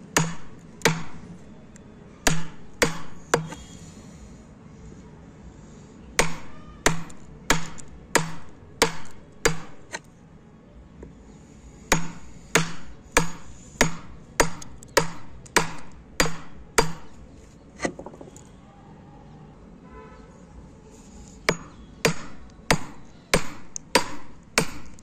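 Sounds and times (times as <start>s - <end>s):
chisel being struck: 0.1s - 1.3s, 2.2s - 3.6s, 6.2s - 10.1s, 11.9s - 17.2s, 21.4s - 25.0s.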